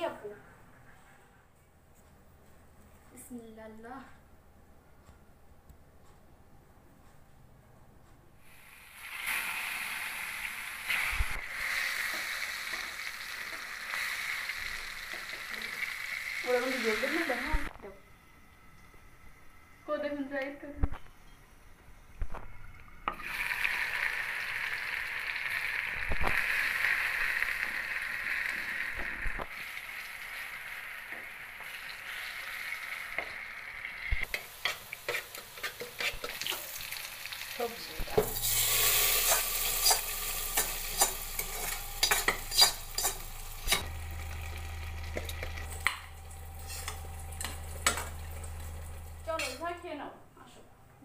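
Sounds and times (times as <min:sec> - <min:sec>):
food frying in oil: 0:08.4 - 0:17.7, 0:23.1 - 0:49.7
oil sizzling in a pan: 0:08.4 - 0:17.7, 0:23.0 - 0:49.6
spoon stirring and clinking in pot: 0:39.2 - 0:44.0, 0:45.1 - 0:48.8.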